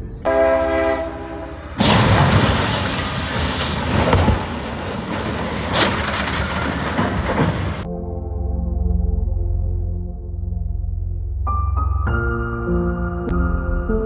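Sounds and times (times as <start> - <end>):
locomotive horn: 0.3 - 1.8
noisy crashing: 1.7 - 7.9
sharp bang: 1.8 - 4.8
loud crash: 1.8 - 7.9.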